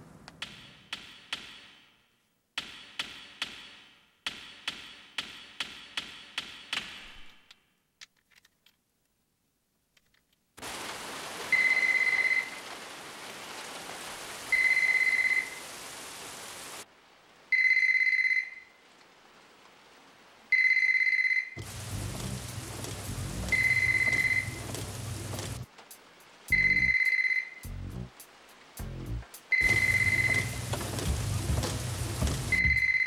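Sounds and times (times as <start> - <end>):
heavy rain: 10.6 - 17.6, 18.7 - 20.5, 21.6 - 27.0, 27.6 - 33.0
telephone ringing: 23.5 - 25.6, 29.6 - 33.0.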